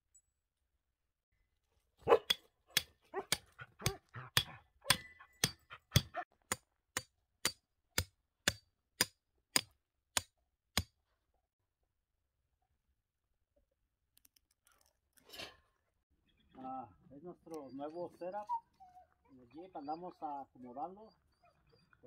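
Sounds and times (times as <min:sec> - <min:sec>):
hammer striking metal tent stake: 0:02.1 - 0:11.0.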